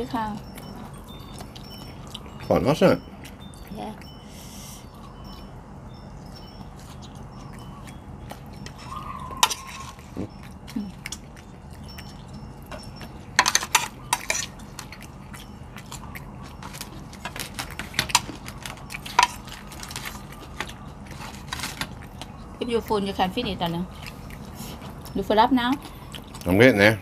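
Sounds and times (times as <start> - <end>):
cutlery clinking on plates: 11.9 - 15.0.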